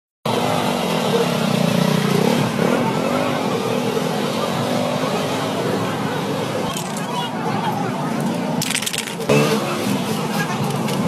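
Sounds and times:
engine revving: 1.1 - 3.6, 9.2 - 10.2.

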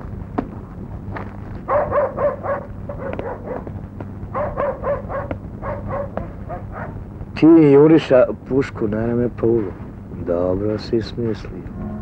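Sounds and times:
steady low hum: 0.0 - 12.0
dog barking: 1.7 - 7.0.

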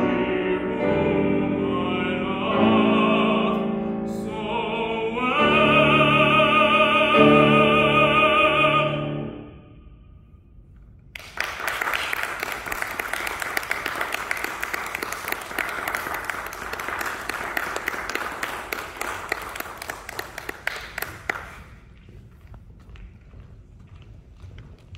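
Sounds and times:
audience applauding: 11.2 - 21.9.

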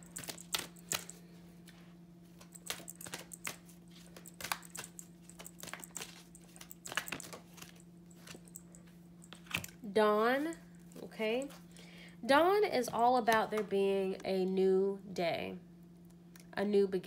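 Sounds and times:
cards being shuffled: 0.0 - 8.6, 9.3 - 9.8
steady low hum: 0.0 - 17.0.

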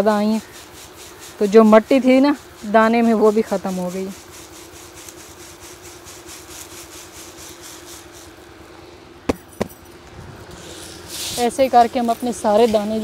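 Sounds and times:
electric fan humming: 0.0 - 13.0
sharp knocks: 9.3 - 9.9.

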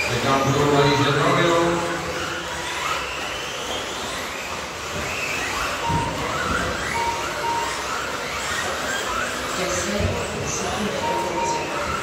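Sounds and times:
rc car motors whining: 0.0 - 12.0
short beeps: 5.8 - 8.6, 10.8 - 12.0.

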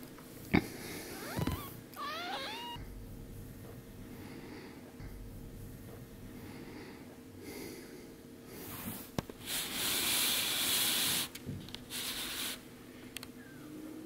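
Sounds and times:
kitten rubbing against camera: 1.2 - 2.8.

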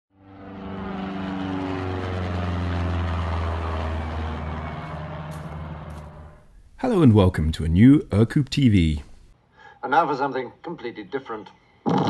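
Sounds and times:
propeller plane flying overhead: 0.1 - 6.6.

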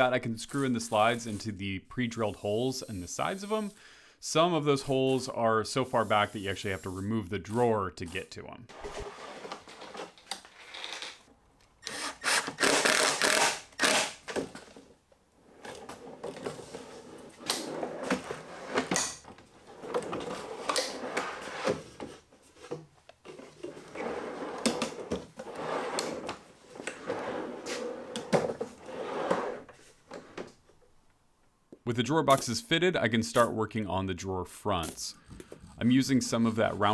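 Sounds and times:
drawer slides rolling rattle: 8.7 - 10.2, 15.5 - 22.1, 23.4 - 30.4.

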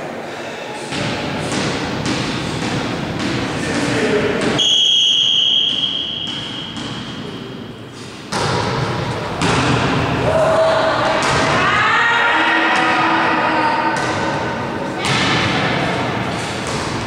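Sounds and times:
players' voices: 2.5 - 4.6, 9.0 - 17.0
referee whistle blast: 4.6 - 6.7.

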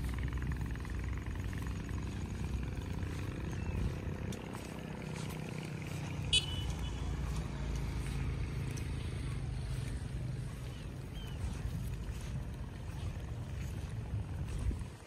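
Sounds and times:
distant engine drone: 0.0 - 15.0.

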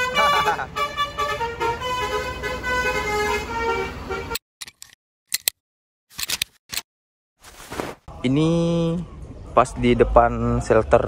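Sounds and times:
multi-tone bus horn: 0.0 - 4.4.

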